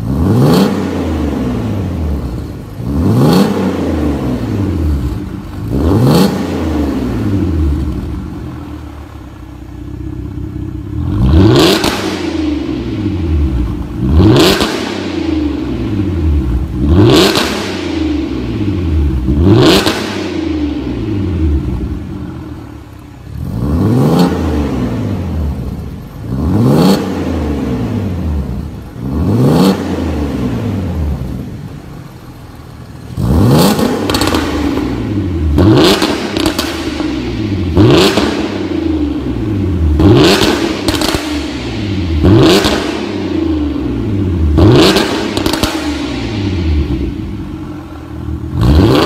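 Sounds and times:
car engine idling: 0:00.0 - 0:49.0
car engine revving: 0:00.0 - 0:49.0.

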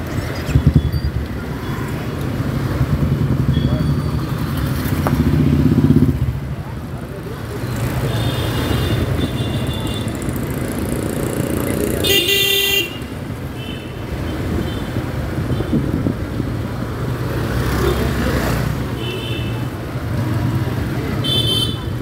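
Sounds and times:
street traffic: 0:00.0 - 0:22.0
motorcycle engine running: 0:02.4 - 0:06.9, 0:07.8 - 0:12.1
vehicle horns honking: 0:08.0 - 0:10.2, 0:12.0 - 0:15.9, 0:21.2 - 0:22.0.

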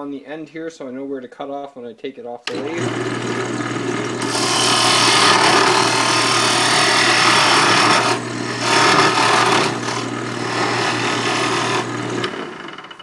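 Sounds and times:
lathe motor humming: 0:02.5 - 0:13.0
turning tool scraping wood: 0:02.5 - 0:13.0.

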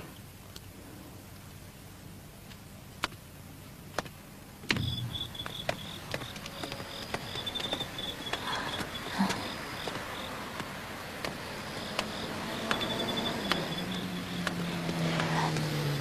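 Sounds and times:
low hum: 0:04.3 - 0:16.0
insects chirping at night: 0:04.7 - 0:16.0.

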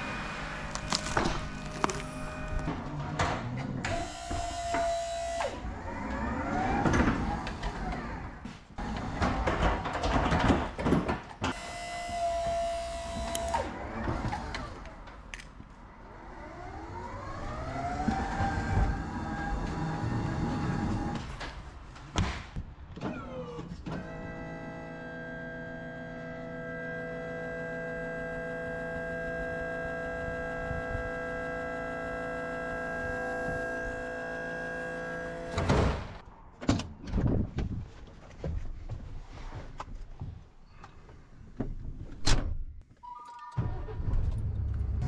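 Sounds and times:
electric motor whine: 0:24.1 - 0:35.7.

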